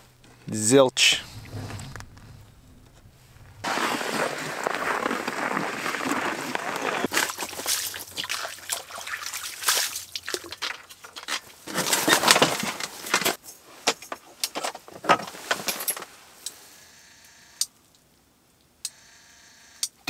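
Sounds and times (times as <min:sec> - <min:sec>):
scraping rush: 0:00.9 - 0:08.2
fishing gear rustling and clicking: 0:01.4 - 0:16.2.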